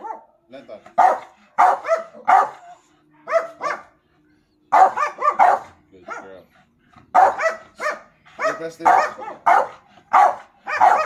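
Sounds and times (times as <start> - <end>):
dog barking: 0.0 - 0.4, 1.0 - 2.7, 3.3 - 4.0, 4.7 - 6.4, 7.1 - 11.0.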